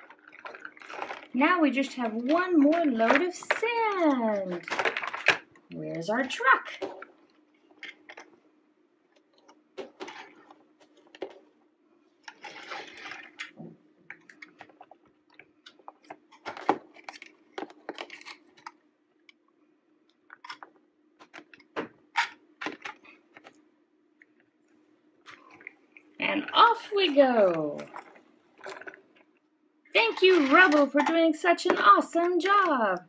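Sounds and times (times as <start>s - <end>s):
faint steady hum: 0.0s - 33.0s
plastic toy trucks clicking: 30.1s - 32.7s.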